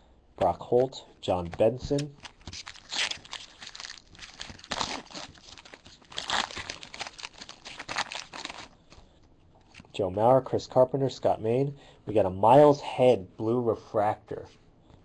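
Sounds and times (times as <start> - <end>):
wrappers tearing and crinkling: 1.6 - 9.0.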